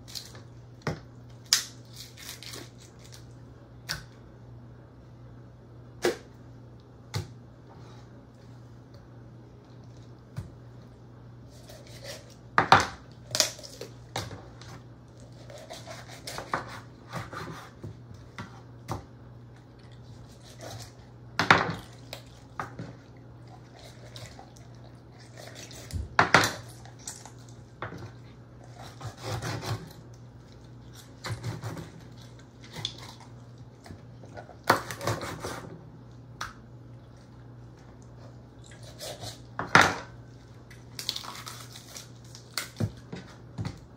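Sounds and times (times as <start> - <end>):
low steady hum: 0.0 - 43.9
knife chopping on wooden board: 28.9 - 29.9.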